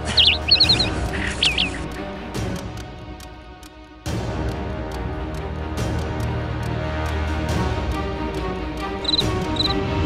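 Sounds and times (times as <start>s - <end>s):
music of sustained tones: 0.0s - 10.0s.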